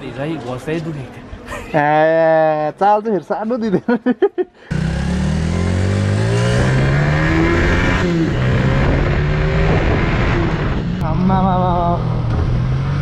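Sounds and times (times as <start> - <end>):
motorcycle engine accelerating: 4.7 - 13.0.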